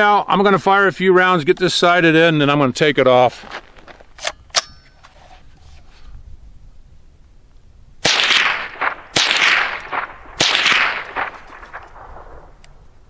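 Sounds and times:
rifle shots echoing: 8.0s - 13.0s.

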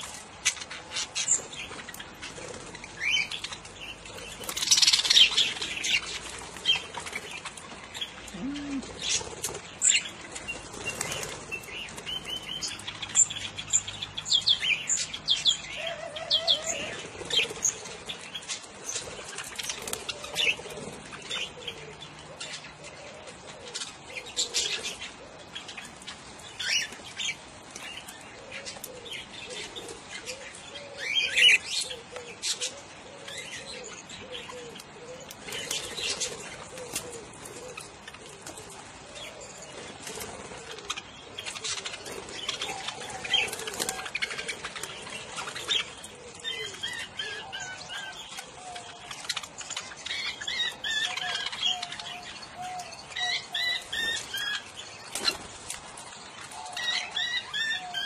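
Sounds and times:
birds chirping and warbling: 0.0s - 58.0s
wings flapping: 4.3s - 12.1s, 39.7s - 45.7s, 53.8s - 55.9s.

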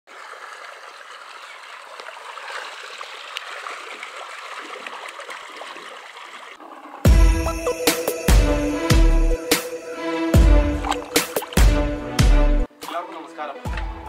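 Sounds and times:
water pouring and splashing: 0.1s - 7.5s, 10.4s - 12.0s.

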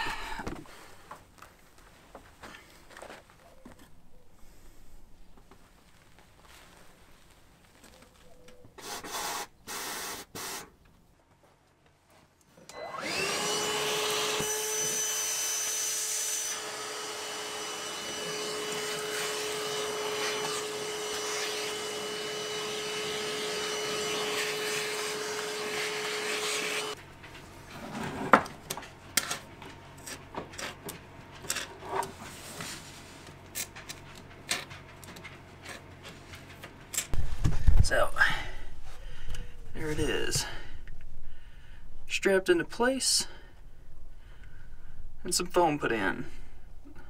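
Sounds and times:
power tool running: 12.7s - 27.0s.

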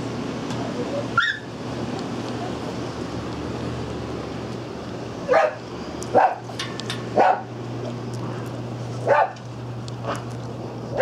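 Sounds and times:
steady low hum: 0.0s - 11.0s
dog barking: 5.3s - 6.4s, 7.2s - 7.5s, 9.1s - 9.4s.

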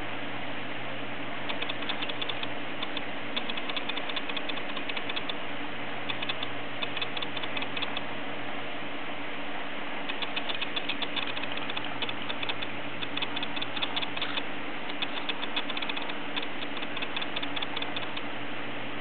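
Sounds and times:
cockatiel grinding beak: 10.1s - 18.2s.

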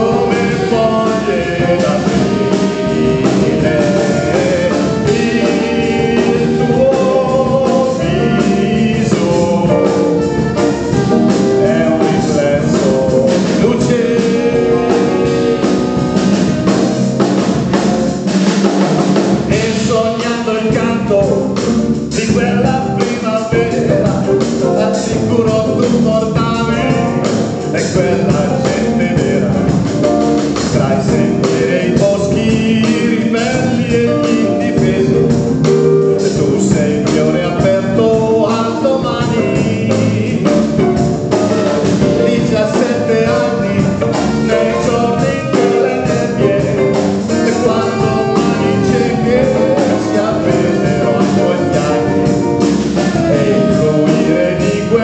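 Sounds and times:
man singing: 0.0s - 18.2s, 19.4s - 55.0s
electric guitar: 0.0s - 18.3s
drum kit: 0.0s - 55.0s
electric bass: 0.0s - 55.0s.

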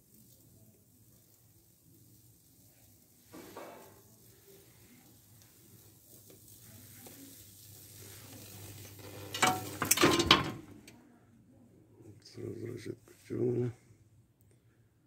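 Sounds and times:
electric discharge crackling on wood: 0.0s - 10.9s.

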